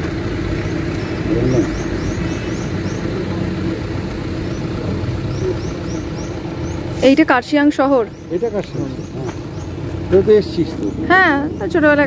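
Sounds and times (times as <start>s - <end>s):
low hum and rumble: 0.0s - 12.0s
small birds chirping: 0.0s - 12.0s.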